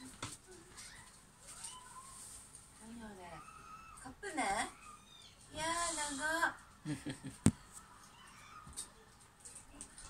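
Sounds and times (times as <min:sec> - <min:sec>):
faint soft ticks and rustles: 0:00.0 - 0:06.8, 0:07.8 - 0:10.0.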